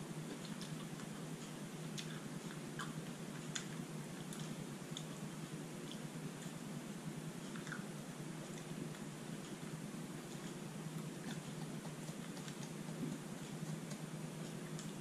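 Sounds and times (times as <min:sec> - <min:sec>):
person chewing: 0:00.2 - 0:06.6, 0:07.4 - 0:15.0
wet mouth clicks: 0:07.5 - 0:07.9.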